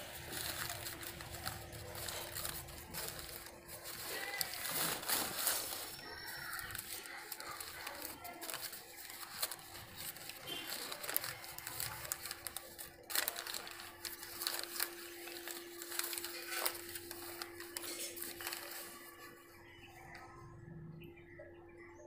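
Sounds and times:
paper crinkling and rustling: 0.0 - 19.8.

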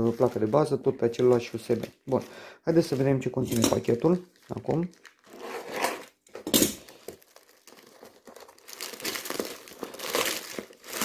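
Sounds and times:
plastic bag crinkling: 1.2 - 5.4, 6.8 - 11.0
plastic bag ripping: 6.8 - 11.0.

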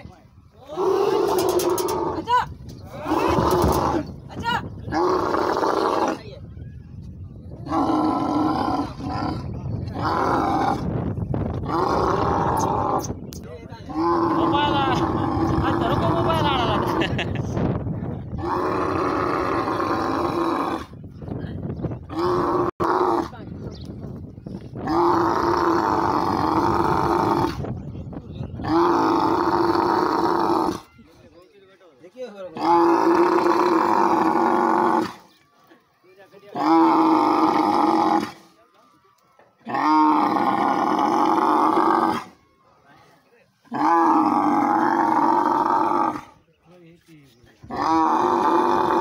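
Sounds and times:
camel bellowing: 0.6 - 4.2, 11.6 - 13.2, 13.8 - 17.3, 18.4 - 21.0, 24.8 - 27.6, 28.6 - 31.0, 39.6 - 42.4, 43.6 - 46.4, 47.6 - 49.0
camel calling: 0.6 - 6.5, 13.9 - 17.4.

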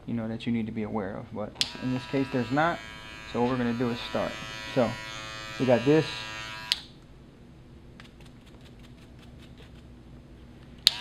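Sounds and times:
hair clipper buzzing: 1.6 - 6.9.

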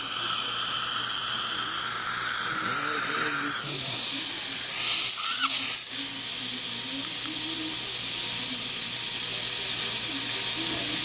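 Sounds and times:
warbling slurp: 0.0 - 6.3
dental suction hissing: 0.0 - 11.0.

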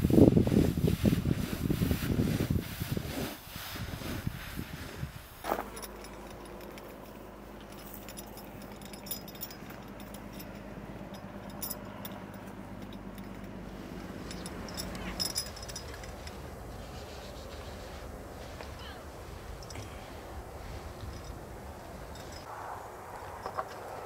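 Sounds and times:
rake scraping through grain: 0.0 - 5.7, 15.8 - 19.6
metal rings clinking on strap: 5.4 - 17.5, 19.5 - 20.1, 20.8 - 22.5.

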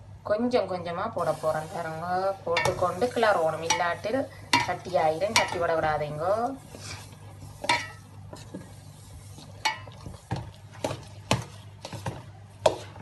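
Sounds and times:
low steady hum: 0.0 - 13.0
metal spoon scraping a pot: 6.6 - 13.0.

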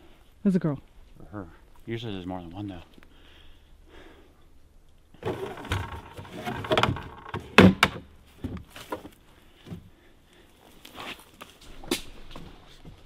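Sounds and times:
plastic scraping and rattling: 5.2 - 8.0
sharp knocks: 5.2 - 8.0.

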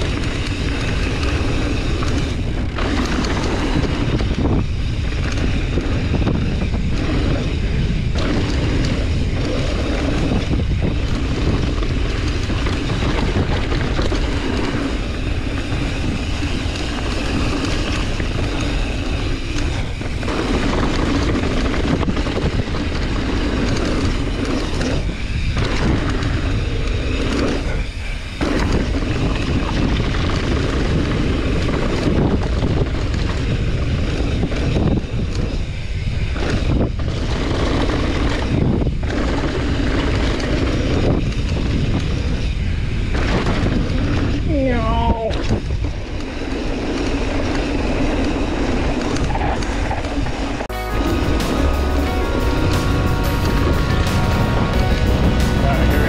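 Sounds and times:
tyres rumbling on dirt: 0.0 - 35.0
wind noise on microphone: 0.0 - 56.0.

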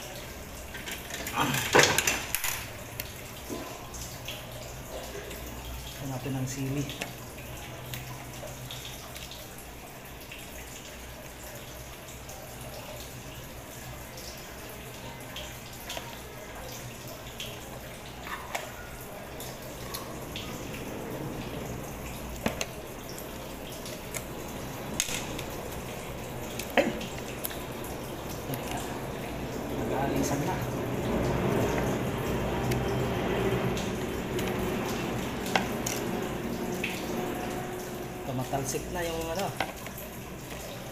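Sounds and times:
steady low hum: 19.1 - 39.0.

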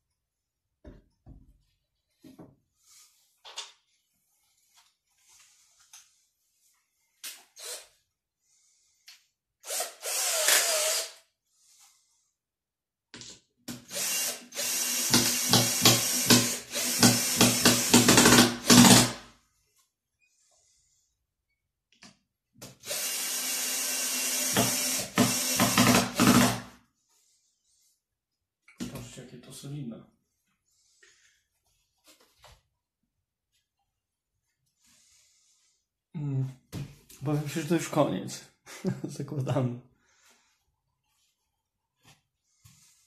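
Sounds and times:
cordless drill driving screws: 7.6 - 7.9, 9.6 - 11.2, 13.7 - 19.2, 22.8 - 26.7.

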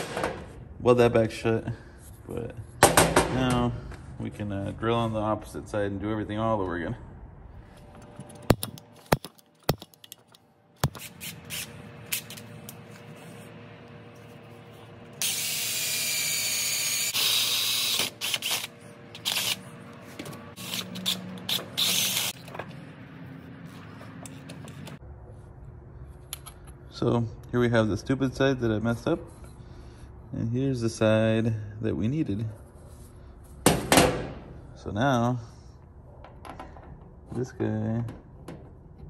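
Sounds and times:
drill boring through metal: 15.2 - 18.7.

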